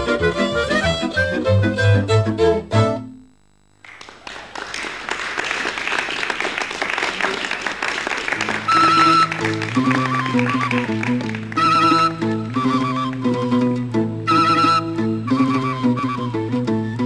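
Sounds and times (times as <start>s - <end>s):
folk dance music: 0.0s - 17.0s
audience applauding: 3.8s - 13.5s.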